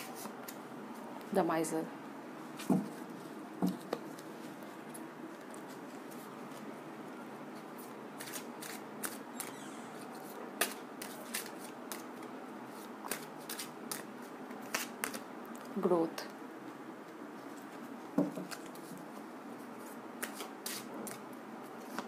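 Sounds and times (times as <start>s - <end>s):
cards being shuffled: 7.8s - 15.3s, 18.3s - 19.0s, 19.8s - 21.2s.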